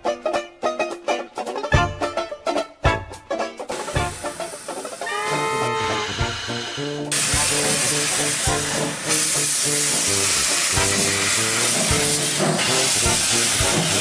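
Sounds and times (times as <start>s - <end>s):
simple background tune: 0.0s - 14.0s
steam locomotive hissing: 3.7s - 14.0s.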